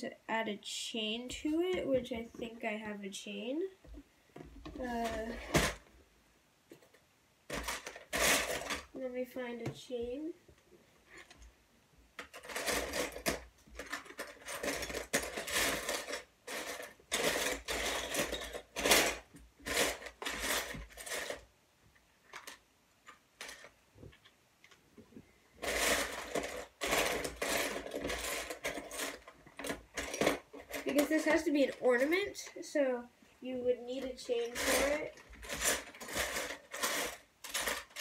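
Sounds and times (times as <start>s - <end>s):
plastic bricks rattling and clattering: 7.5s - 8.9s, 12.2s - 21.5s, 22.2s - 24.3s, 25.6s - 32.1s, 34.0s - 38.0s.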